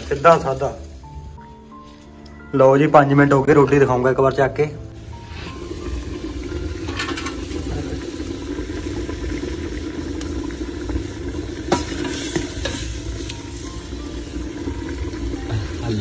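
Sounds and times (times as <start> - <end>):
curry bubbling in a pot: 5.5 - 16.0.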